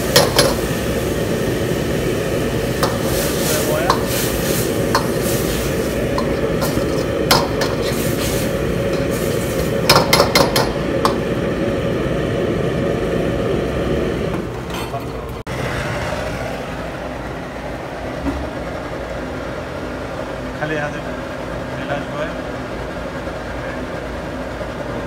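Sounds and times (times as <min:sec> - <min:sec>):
gas burner low rumble: 0:00.0 - 0:25.0
ladle scraping in a wok: 0:02.7 - 0:11.3.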